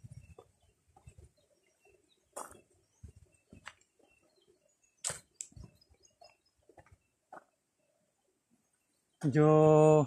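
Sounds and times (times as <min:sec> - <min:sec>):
footsteps on gravel path: 0:00.0 - 0:04.3, 0:05.0 - 0:07.6.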